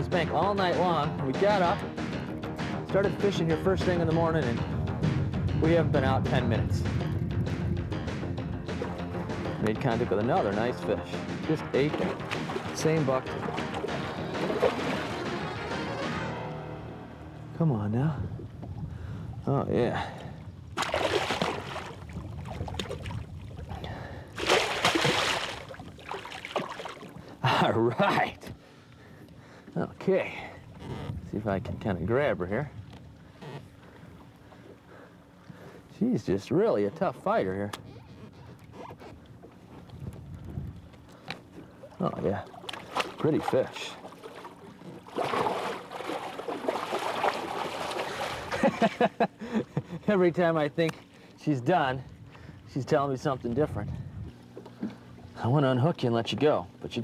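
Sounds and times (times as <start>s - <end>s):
fish thrashing and splashing water: 11.8s - 15.5s, 20.7s - 27.4s, 41.6s - 49.0s.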